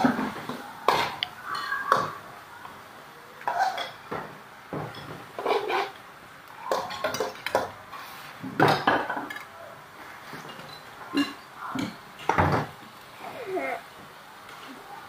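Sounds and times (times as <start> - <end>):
utensils clinking against metal wok: 6.6 - 7.8
utensils knocking on plates: 6.6 - 7.8.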